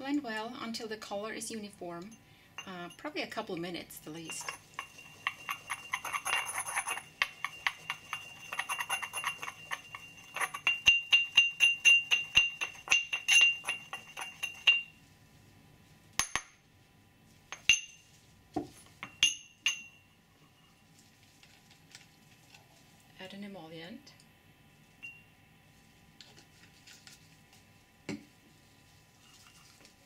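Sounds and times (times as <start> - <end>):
pestle grinding in ceramic mortar: 4.2 - 15.0.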